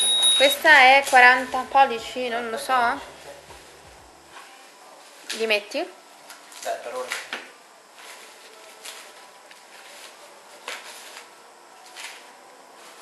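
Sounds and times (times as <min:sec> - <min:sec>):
foam packaging rustling: 0:07.9 - 0:13.0.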